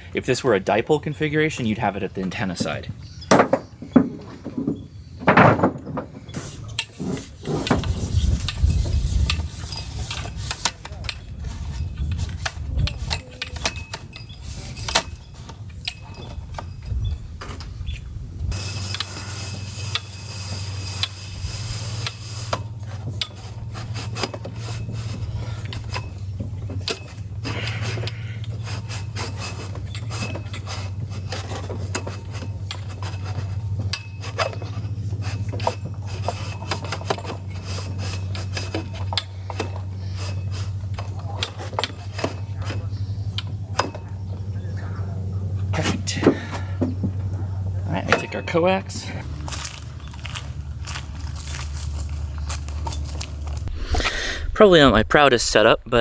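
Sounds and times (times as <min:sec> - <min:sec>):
steady low hum: 0:00.0 - 0:56.0
metal mast sections scraping: 0:06.2 - 0:43.3.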